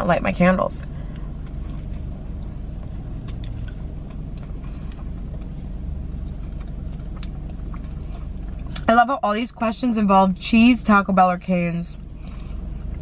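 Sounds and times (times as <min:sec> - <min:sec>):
car engine idling: 0:00.0 - 0:13.0
person chewing: 0:01.0 - 0:08.9.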